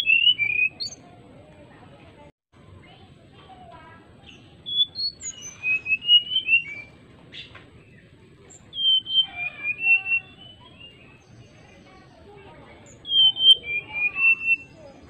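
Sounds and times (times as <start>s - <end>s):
bird singing fluty whistles: 0.0s - 1.0s, 4.3s - 7.5s, 8.5s - 11.6s, 12.8s - 15.0s.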